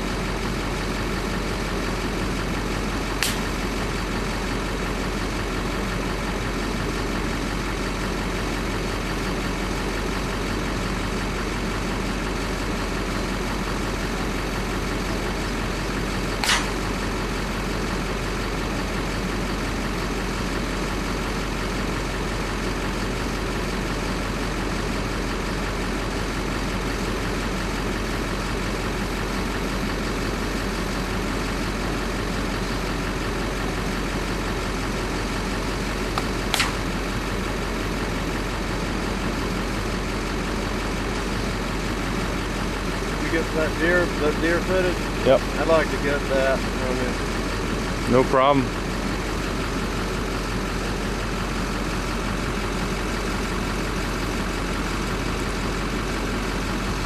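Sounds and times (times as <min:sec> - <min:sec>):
vehicle engine idling: 0:00.0 - 0:57.0
short sharp clicks: 0:03.2 - 0:03.4, 0:16.4 - 0:16.8, 0:36.2 - 0:36.8.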